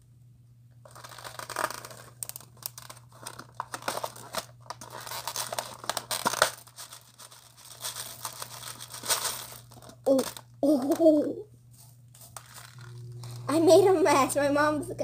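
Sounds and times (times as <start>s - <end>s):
plastic beads rattling in case: 0.8s - 11.2s, 12.2s - 13.5s.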